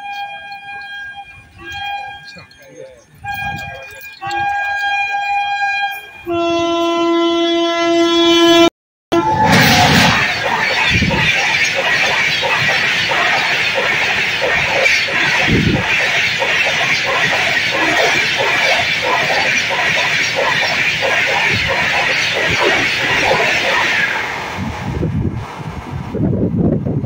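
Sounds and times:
train coaches rushing past: 9.2 - 26.6
wheels clattering: 9.5 - 24.6.

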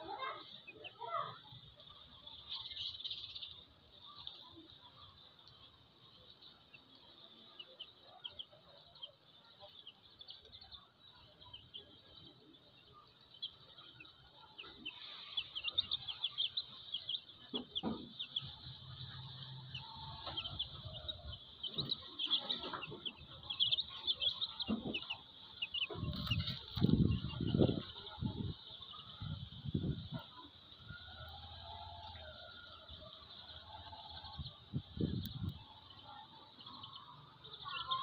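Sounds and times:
chicks peeping: 0.0 - 38.0
hen clucking softly: 13.9 - 29.4.

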